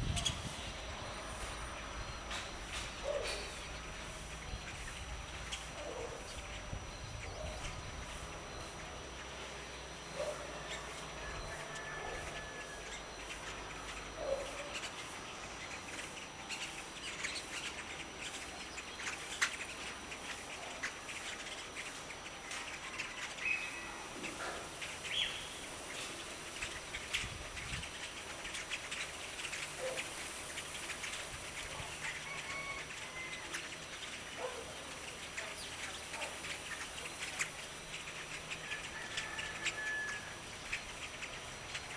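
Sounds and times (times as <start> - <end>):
birds chirping: 0.0 - 41.9
lower bird call: 29.8 - 33.8.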